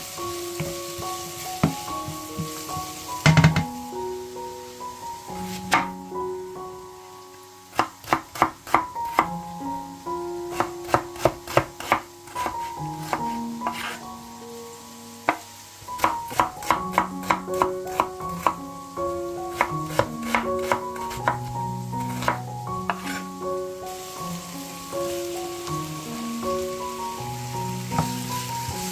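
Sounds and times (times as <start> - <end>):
soft background music: 0.0 - 28.9
knife chopping on wooden board: 5.7 - 5.9, 10.5 - 14.0.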